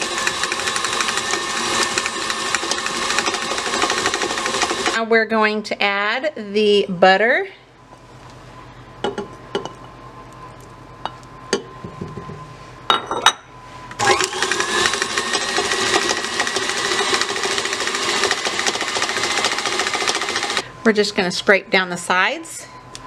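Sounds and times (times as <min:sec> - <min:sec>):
electric stand mixer running: 0:00.0 - 0:05.0, 0:14.0 - 0:20.6.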